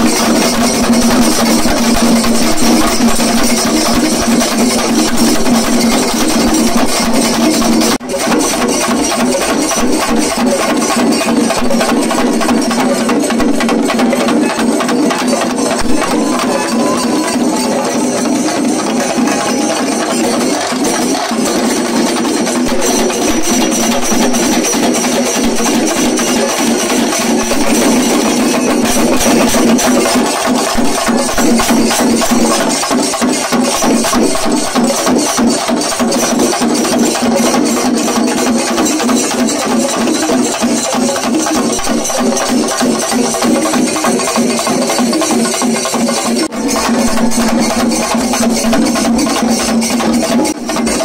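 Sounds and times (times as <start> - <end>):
ensemble of drums beaten with sticks: 0.0 - 51.0.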